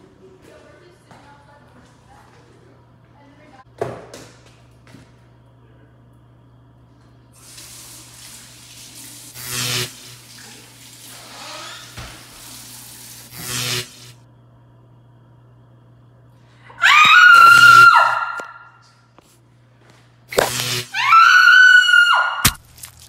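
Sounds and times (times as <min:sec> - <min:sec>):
tap water running into sink: 0:10.2 - 0:13.3.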